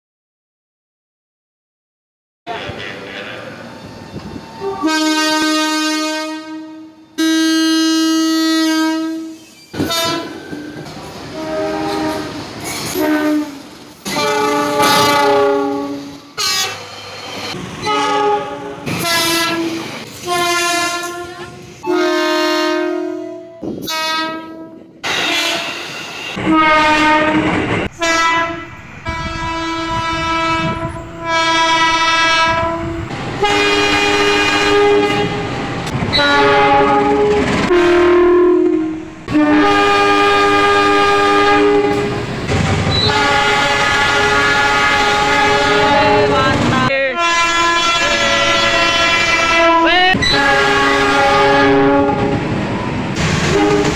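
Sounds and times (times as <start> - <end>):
train horn blasts: 4.6 - 16.9, 17.8 - 35.5, 36.1 - 42.2, 42.9 - 46.4, 47.1 - 52.4, 53.4 - 53.9
train wheels clattering on rails: 9.4 - 15.4, 18.8 - 20.6, 36.8 - 37.7, 41.8 - 44.3, 52.1 - 53.9.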